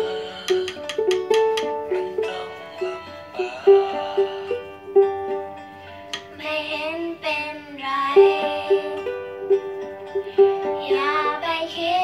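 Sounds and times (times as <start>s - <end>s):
child singing: 6.4s - 9.2s, 10.4s - 12.0s.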